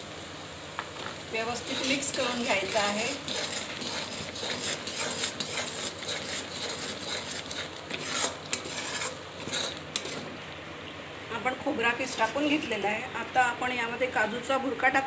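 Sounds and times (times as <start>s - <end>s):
metal spatula scraping pan: 1.5s - 10.4s.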